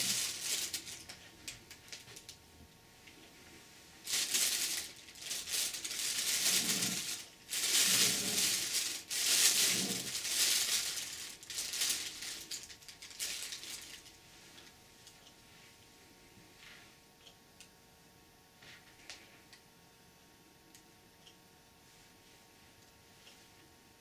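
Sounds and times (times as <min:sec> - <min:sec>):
plastic bag rustling and crinkling: 0:00.0 - 0:02.4, 0:04.0 - 0:14.7.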